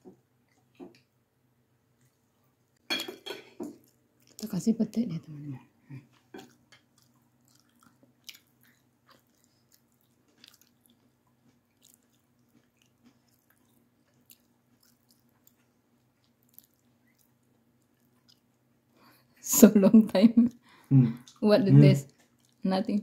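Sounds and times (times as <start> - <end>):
person chewing food: 6.0 - 18.9, 22.1 - 22.6.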